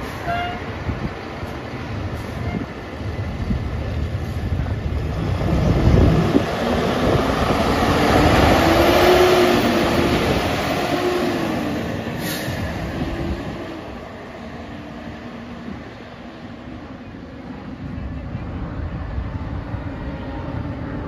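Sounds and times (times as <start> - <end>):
air horn blasts: 0.1 - 0.7
diesel engine revving: 4.2 - 14.0.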